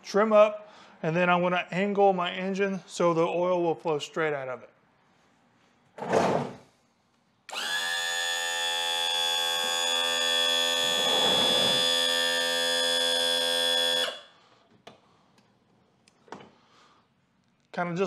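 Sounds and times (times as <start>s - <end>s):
electric trim pump whining: 7.5s - 14.3s.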